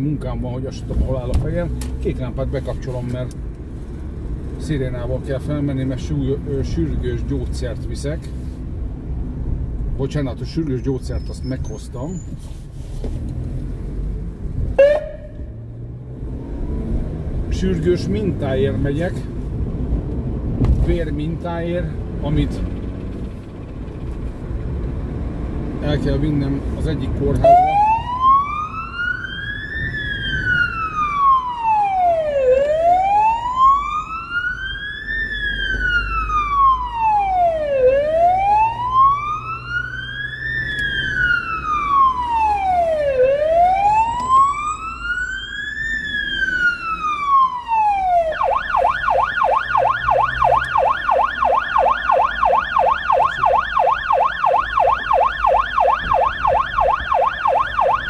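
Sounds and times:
car engine and road noise: 0.0 - 58.0
electronic siren wailing and yelping: 14.8 - 15.5, 27.4 - 58.0.

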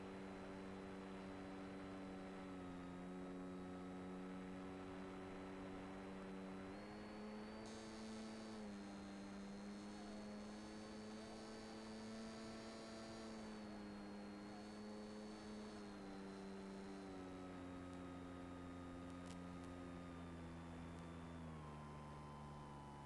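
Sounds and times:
electric motor humming: 6.6 - 17.6.

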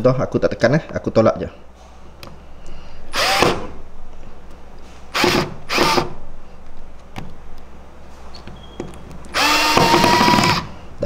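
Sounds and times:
cordless screwdriver motor spinning up: 3.2 - 3.5, 9.3 - 10.7.

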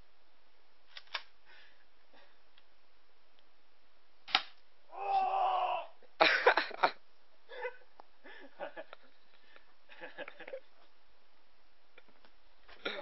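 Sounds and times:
airsoft pistol shot: 4.3 - 4.6
person crying out: 4.9 - 6.1.

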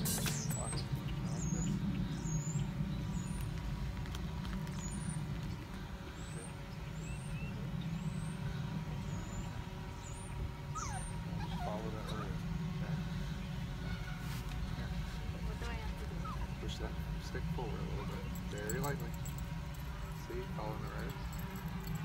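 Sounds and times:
small birds chirping: 0.0 - 13.9, 14.6 - 22.0
dog whining: 10.7 - 12.3, 15.7 - 16.9.

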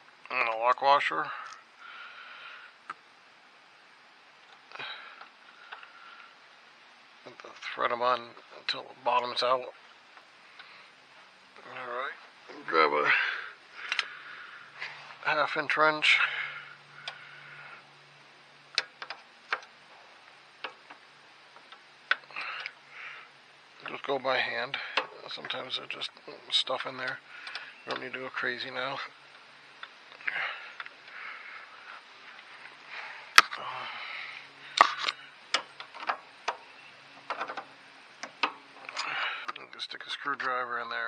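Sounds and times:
metal clicks and knocks from tools: 34.8 - 39.1.

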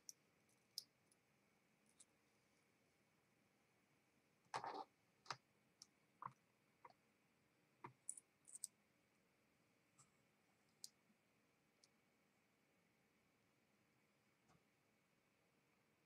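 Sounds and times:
small metal parts clicking: 8.0 - 8.7.

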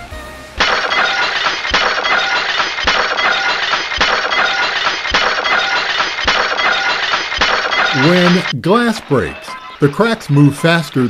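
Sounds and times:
glass shattering: 0.6 - 9.9.

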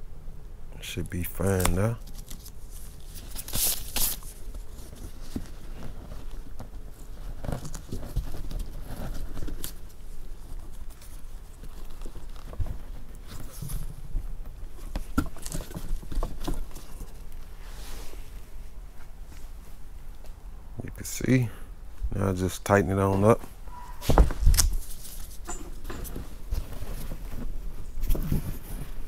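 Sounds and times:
hands rubbing fabric: 17.5 - 19.8.

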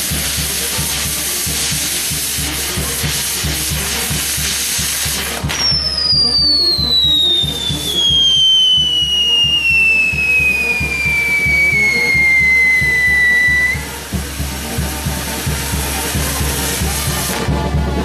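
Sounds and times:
fireworks hissing: 0.0 - 17.7
music with drum beat: 0.0 - 18.0
long falling whistle: 5.6 - 13.9.

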